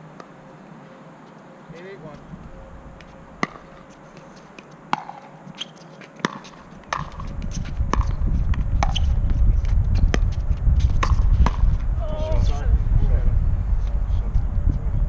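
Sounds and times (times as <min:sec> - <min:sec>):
ball bouncing on hard court: 0:04.9 - 0:11.8
low rumble: 0:07.0 - 0:15.0.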